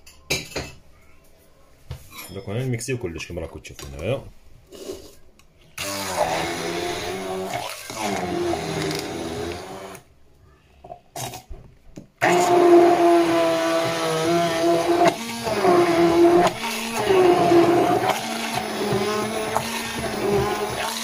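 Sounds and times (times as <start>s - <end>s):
immersion blender motor: 5.8s - 10.0s, 12.2s - 21.0s.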